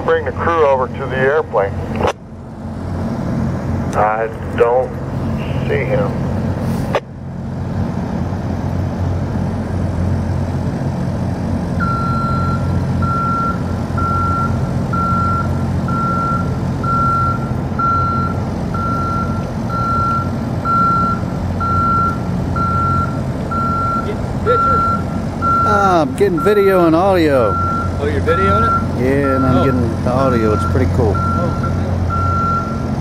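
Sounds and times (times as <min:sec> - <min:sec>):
heavy engine running: 0:00.0 - 0:33.0
vehicle backup alarm beeping: 0:11.8 - 0:33.0.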